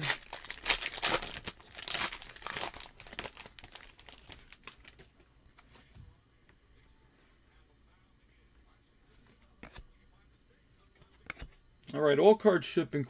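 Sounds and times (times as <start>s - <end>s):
foil wrapper tearing and crinkling: 0.0s - 5.0s.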